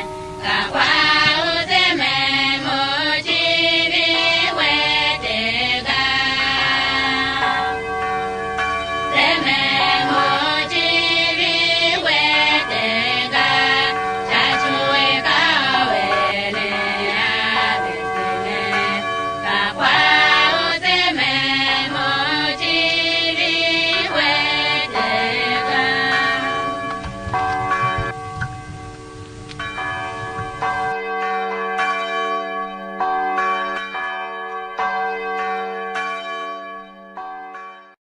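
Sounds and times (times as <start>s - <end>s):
people singing: 0.0s - 7.8s, 9.1s - 27.2s
church bells ringing: 0.0s - 38.0s.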